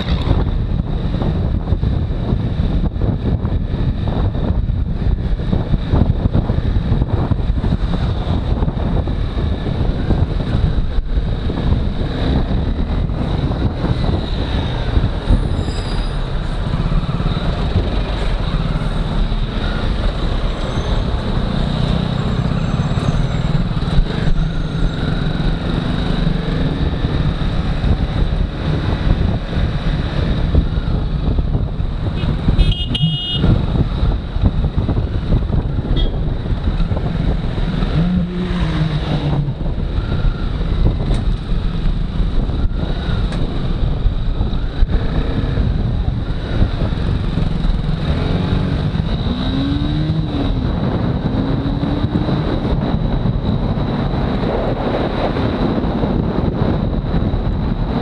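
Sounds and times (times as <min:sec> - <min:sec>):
motorcycle engine: 0:00.0 - 0:53.6
road and wind noise: 0:00.0 - 0:58.0
vehicle horn toot: 0:32.2 - 0:33.5, 0:36.0 - 0:36.2.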